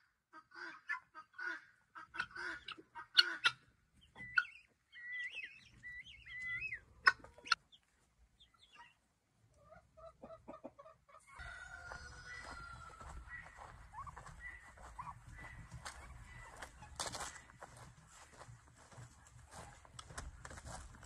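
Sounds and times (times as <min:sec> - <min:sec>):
chickens clucking: 0:00.3 - 0:21.0.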